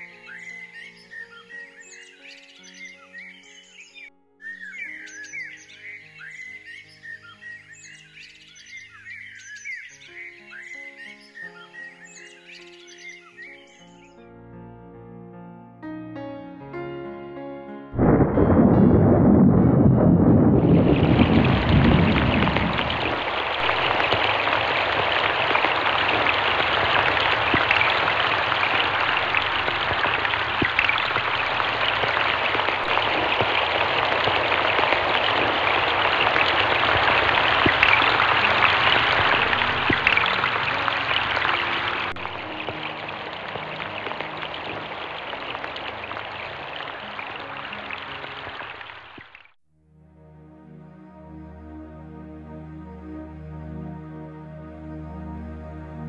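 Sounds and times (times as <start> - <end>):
low rumble of thunder: 18.0 - 40.4
heavy rain pattering on water: 18.0 - 49.6.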